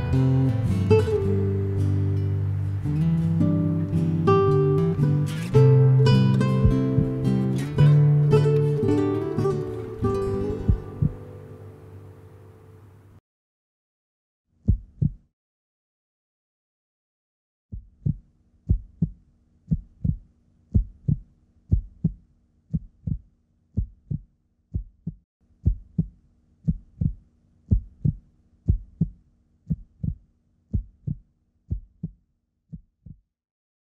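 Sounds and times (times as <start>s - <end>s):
heartbeat double thump: 6.6s - 7.3s, 10.4s - 11.3s, 14.6s - 15.3s, 17.7s - 33.2s.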